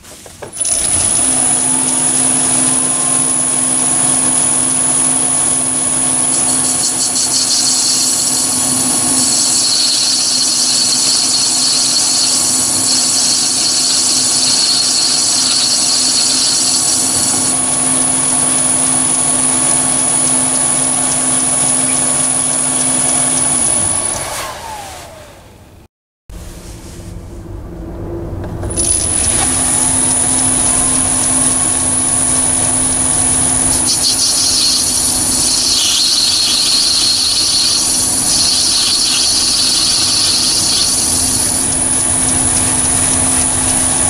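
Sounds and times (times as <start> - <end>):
lathe high-pitched whine: 0.6 - 25.2, 28.6 - 44.0
cutting hiss: 6.2 - 17.6, 28.9 - 43.5.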